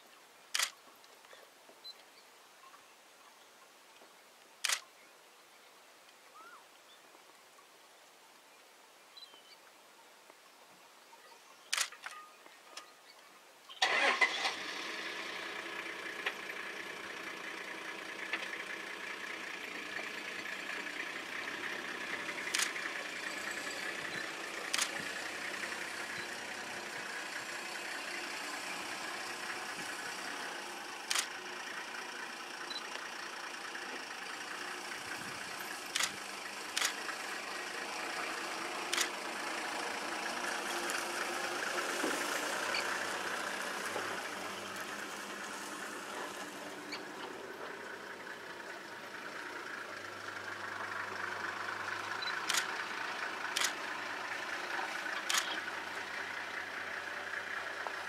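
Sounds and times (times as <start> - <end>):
sharp clicks: 0.5 - 0.8, 4.6 - 4.9, 11.7 - 12.2, 22.4 - 22.8, 24.7 - 25.0, 31.1 - 31.3, 35.9 - 36.2, 36.8 - 37.0, 38.9 - 39.2, 52.2 - 52.8, 53.5 - 53.8, 55.2 - 55.6
vehicle engine starting and idling: 13.8 - 58.0.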